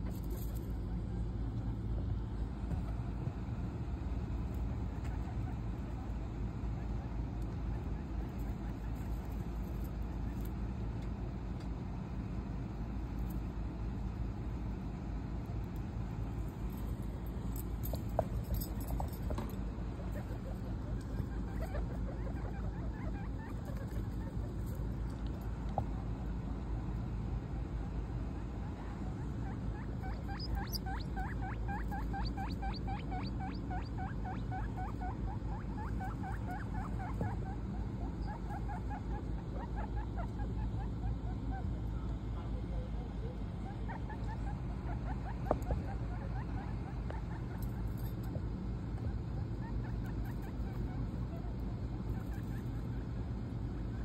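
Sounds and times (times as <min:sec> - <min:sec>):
low background rumble: 0:00.0 - 0:54.0
guinea pig squealing: 0:04.6 - 0:10.4, 0:19.9 - 0:25.1, 0:28.4 - 0:48.2, 0:48.9 - 0:54.0.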